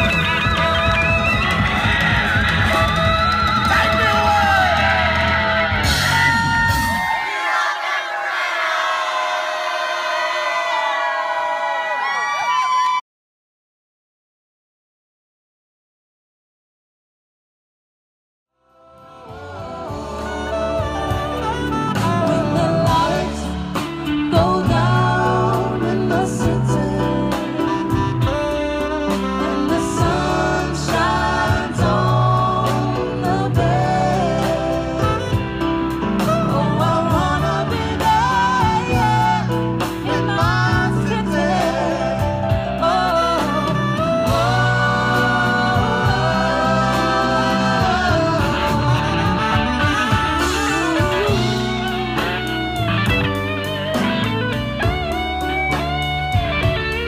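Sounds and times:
soul band playing live: 0:00.0 - 0:07.2, 0:19.0 - 0:57.0
people singing: 0:00.0 - 0:10.5, 0:18.9 - 0:28.4, 0:29.0 - 0:53.3.

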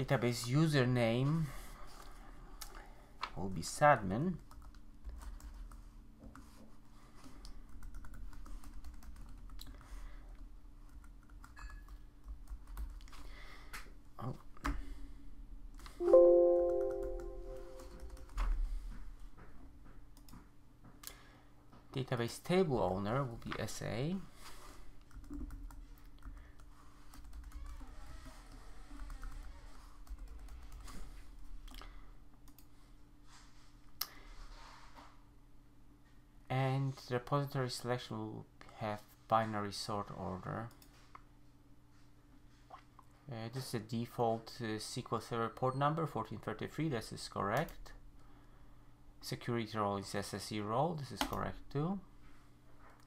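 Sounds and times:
low steady hum: 0:00.0 - 0:20.0
keyboard typing: 0:07.7 - 0:09.8, 0:16.0 - 0:18.5, 0:25.1 - 0:27.8
keyboard keys tapping: 0:16.0 - 0:18.4.

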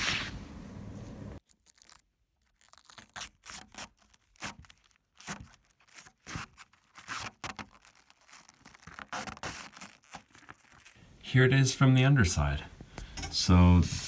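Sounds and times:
plastic film peeling and crinkling: 0:01.4 - 0:11.2.

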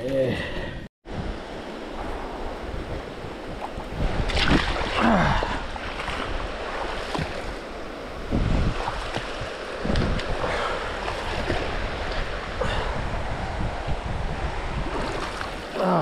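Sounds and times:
water sloshing and splashing: 0:02.8 - 0:13.0, 0:14.8 - 0:16.0.

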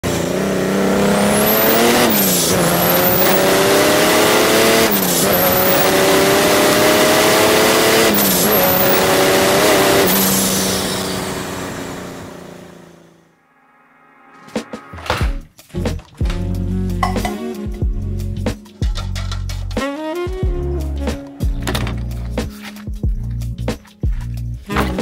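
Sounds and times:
diesel engine accelerating: 0:00.0 - 0:13.3
turbo whistle: 0:01.3 - 0:06.2, 0:08.0 - 0:09.4.

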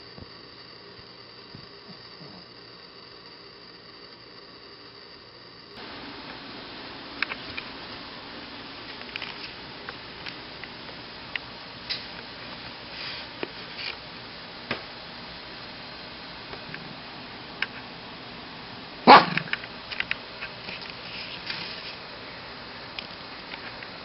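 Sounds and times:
dog barking: 0:19.0 - 0:19.6.

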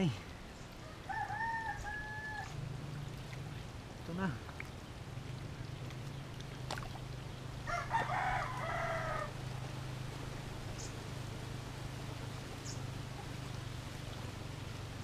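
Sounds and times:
steady low hum: 0:00.2 - 0:15.0
rooster crowing: 0:00.8 - 0:02.6, 0:07.6 - 0:09.4.

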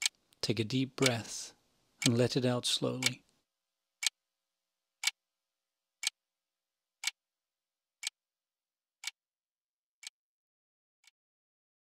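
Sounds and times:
clock ticking: 0:00.8 - 0:01.4, 0:02.0 - 0:03.2.

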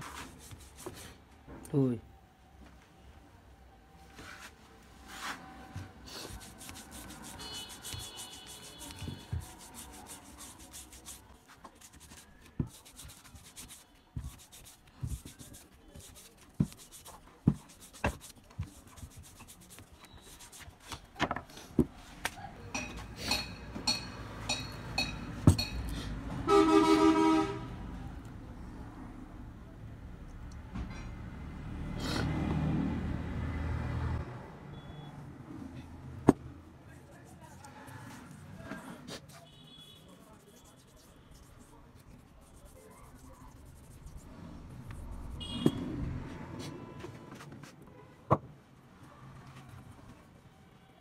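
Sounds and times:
wire brush scrubbing metal: 0:06.2 - 0:20.7
horn sounding: 0:26.4 - 0:27.8, 0:45.3 - 0:45.9.

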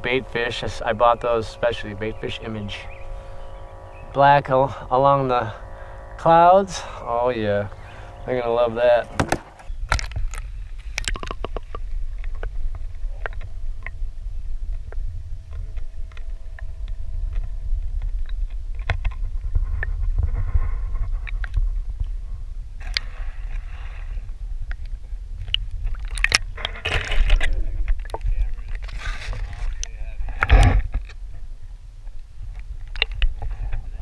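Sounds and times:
faint whine: 0:00.0 - 0:34.0
low rumble: 0:00.0 - 0:34.0
fishing tackle clicks and knocks: 0:09.1 - 0:14.0.

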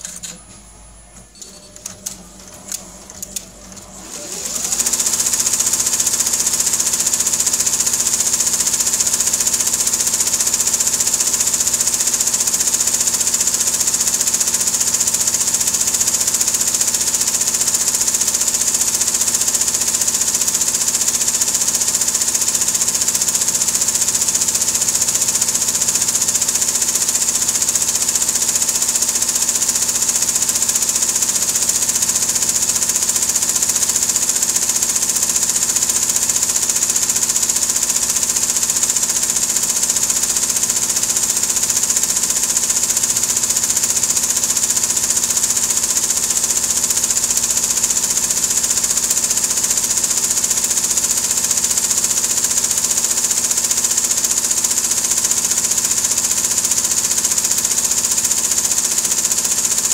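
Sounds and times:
embroidery machine stitching: 0:00.0 - 0:59.9.

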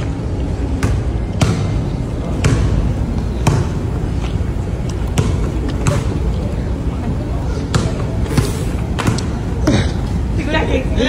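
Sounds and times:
steady background hum: 0:00.0 - 0:11.0
basketball bouncing on hard floor: 0:00.8 - 0:02.8, 0:03.4 - 0:03.8, 0:05.2 - 0:06.2, 0:07.7 - 0:09.3.

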